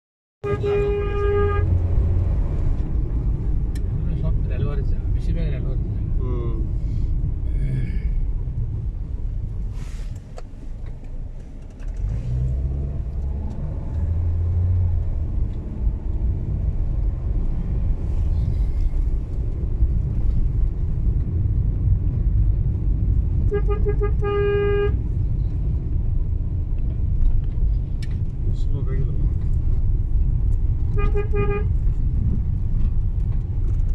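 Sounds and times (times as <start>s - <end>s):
vehicle horn beeping: 0.4s - 1.8s, 23.5s - 25.0s, 31.0s - 31.8s
car engine and road rumble: 0.4s - 33.9s.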